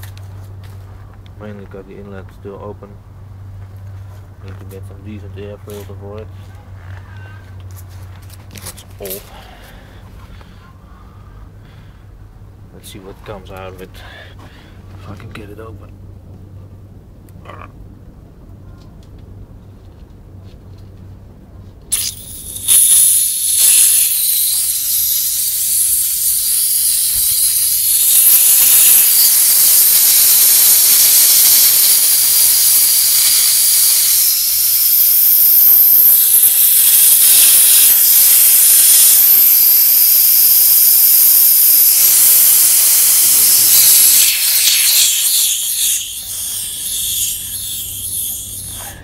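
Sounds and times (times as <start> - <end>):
compressed air hissing: 21.9 - 49.0.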